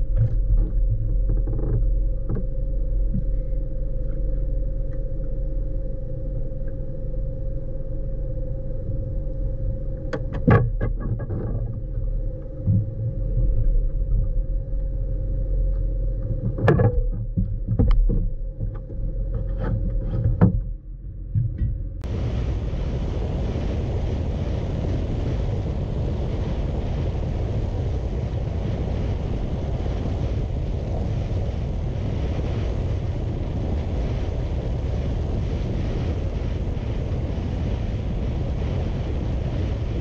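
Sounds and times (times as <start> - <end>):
knocks and thumps on boat: 0.0 - 3.4, 10.1 - 13.2, 16.2 - 22.1
wind and water rumble: 0.0 - 40.0.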